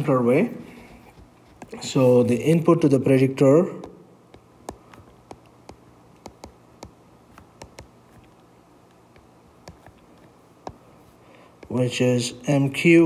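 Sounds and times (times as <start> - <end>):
stylus clicking on tablet screen: 3.8 - 10.9.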